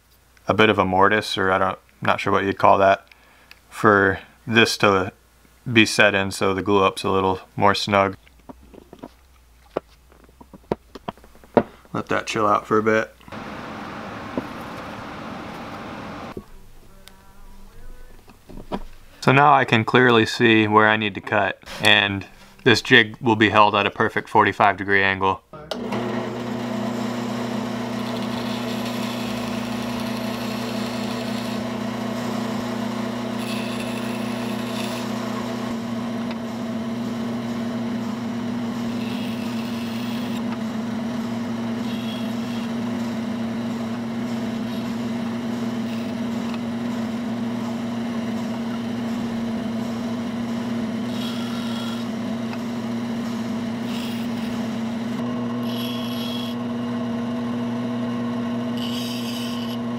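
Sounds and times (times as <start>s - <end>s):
bandsaw motor hum: 13.3s - 16.7s, 25.6s - 59.9s
saw blade rasping: 27.8s - 35.7s, 38.0s - 40.6s, 41.8s - 56.6s, 58.7s - 59.9s.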